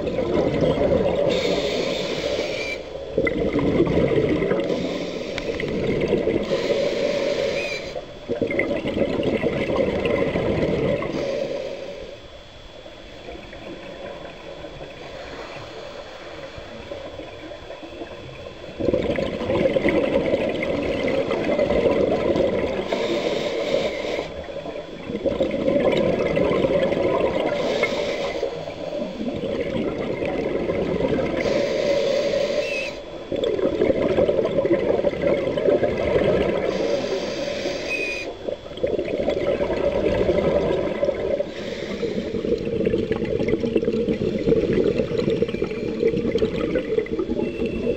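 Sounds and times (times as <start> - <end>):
exhaled bubbles rushing: 0.0 - 1.6, 3.1 - 4.8, 5.5 - 6.5, 8.2 - 11.2, 13.2 - 23.0, 24.4 - 27.7, 28.5 - 31.5, 33.2 - 36.9, 38.4 - 47.9
regulator inhale hiss: 1.2 - 3.1, 4.4 - 8.1, 11.0 - 12.3, 14.9 - 17.4, 22.4 - 24.8, 27.2 - 29.4, 31.2 - 33.2, 36.4 - 38.6, 39.9 - 42.8.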